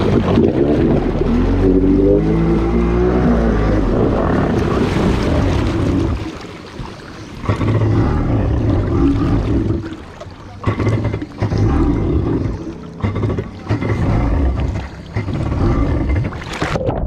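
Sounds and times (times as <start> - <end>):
jet ski engine running: 0.0 - 6.3.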